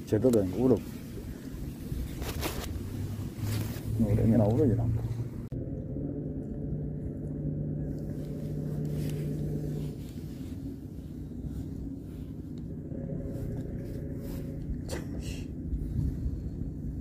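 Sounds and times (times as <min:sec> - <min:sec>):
droning hum: 0:00.0 - 0:17.0
low steady rumble: 0:00.0 - 0:17.0.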